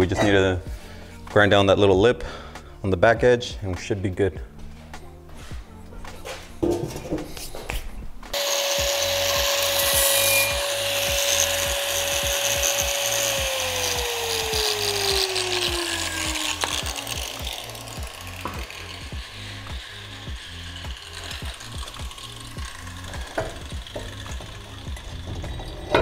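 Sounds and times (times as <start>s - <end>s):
angle grinder whining and grinding: 8.3s - 26.0s.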